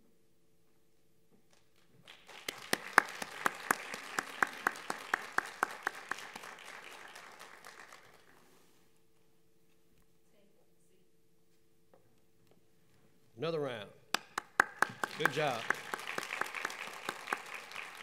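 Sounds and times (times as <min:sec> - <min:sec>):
loud evenly spaced claps: 0:01.5 - 0:08.4, 0:14.1 - 0:18.0
audience applauding: 0:02.0 - 0:08.5, 0:14.2 - 0:18.0.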